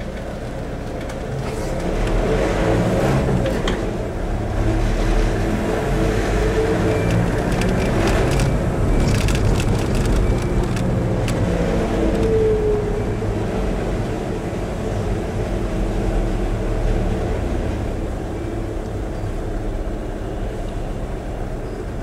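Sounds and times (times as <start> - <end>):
car engine and road noise: 0.0 - 22.0
sharp clicks: 6.9 - 11.4.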